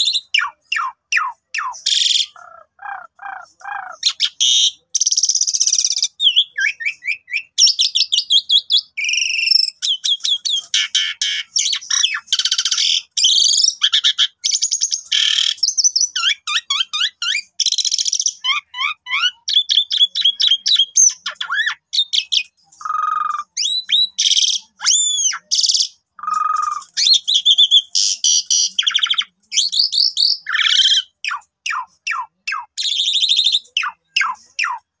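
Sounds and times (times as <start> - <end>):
starling singing: 0.0 - 35.0.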